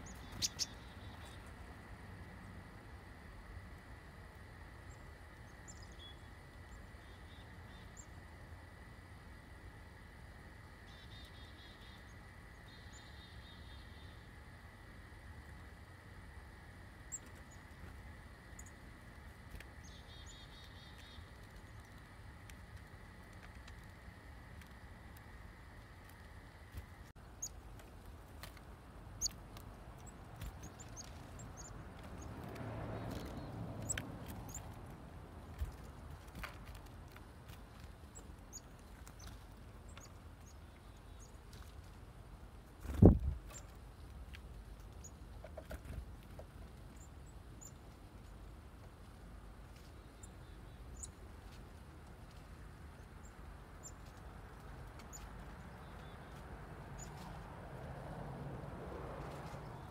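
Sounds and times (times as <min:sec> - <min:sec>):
chickadee chip calls: 0:00.0 - 0:01.4
chickadees chirping: 0:00.0 - 0:01.5, 0:30.0 - 0:34.8.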